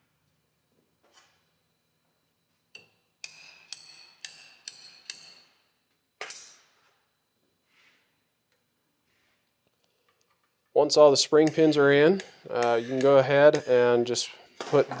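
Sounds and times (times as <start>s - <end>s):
hammer tapping steel punch: 2.8s - 5.5s, 11.4s - 14.0s.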